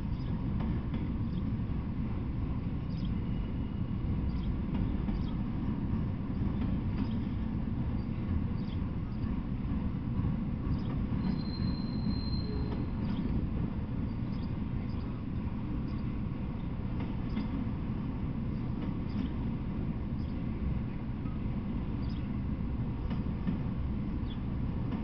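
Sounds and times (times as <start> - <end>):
clicks of train wheels: 0.0 - 25.0
train wheels rumbling on rail: 0.0 - 25.0
high wheel squeal: 10.7 - 13.3.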